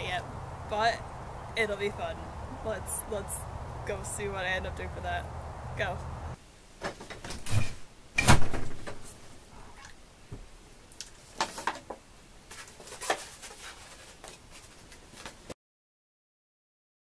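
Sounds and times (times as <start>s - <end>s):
objects knocking and clattering: 11.4s - 12.0s.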